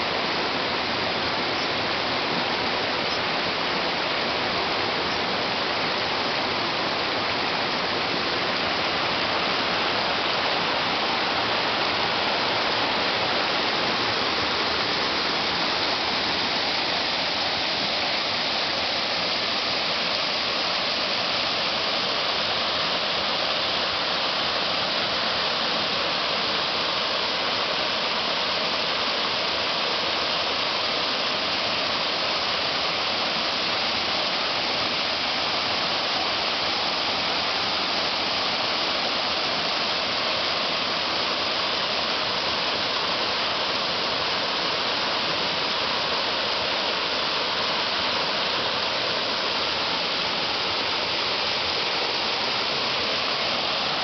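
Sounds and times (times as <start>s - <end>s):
small waterfall rushing: 0.0s - 54.0s.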